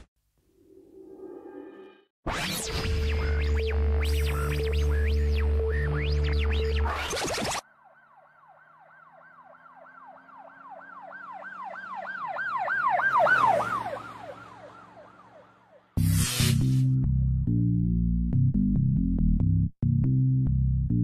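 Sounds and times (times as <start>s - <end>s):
siren yelping: 4.0s - 15.9s
engine and road noise: 7.9s - 16.8s.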